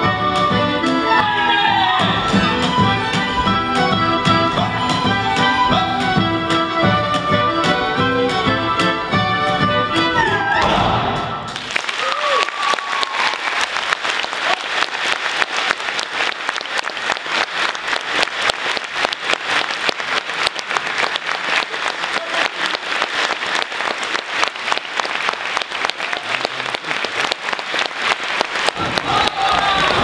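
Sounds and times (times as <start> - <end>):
audience applauding: 11.5 - 30.0.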